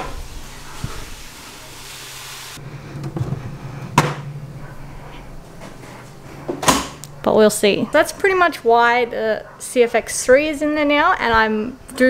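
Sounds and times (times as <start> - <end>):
hiss: 0.0 - 2.6
faint low hum: 2.6 - 9.8.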